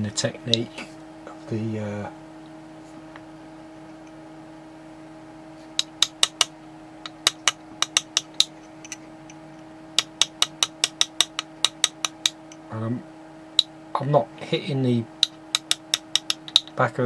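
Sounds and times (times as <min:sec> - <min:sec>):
steady low hum: 0:00.0 - 0:17.0
graver tapping metal: 0:05.7 - 0:12.7, 0:15.2 - 0:16.8.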